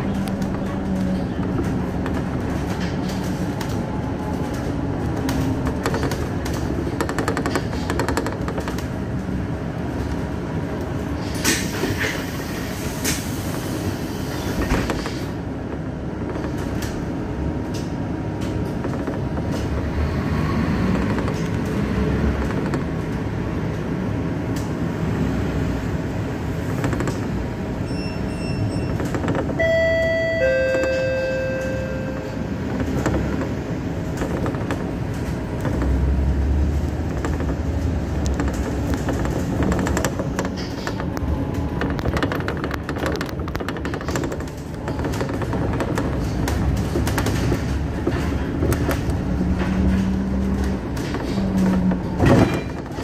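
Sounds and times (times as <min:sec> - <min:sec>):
sharp clicks and rattles: 0:00.0 - 0:10.3, 0:20.9 - 0:23.8, 0:26.6 - 0:27.4, 0:31.6 - 0:53.0
bus engine and road rumble: 0:00.0 - 0:53.0.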